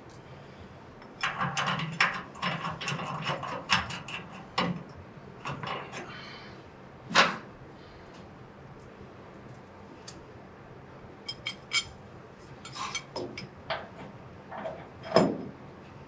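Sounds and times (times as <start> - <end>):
metal clicks and scraping: 12.6 - 15.2.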